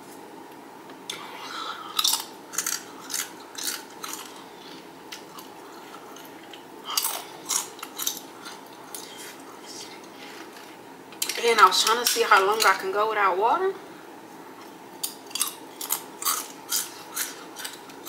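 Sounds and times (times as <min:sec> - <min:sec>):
tortilla chips crunching: 0:01.9 - 0:09.0, 0:15.0 - 0:18.0.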